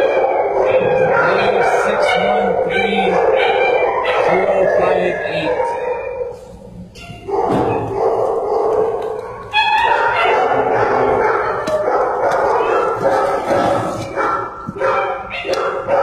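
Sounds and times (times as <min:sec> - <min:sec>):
dogs barking: 0:00.0 - 0:16.0.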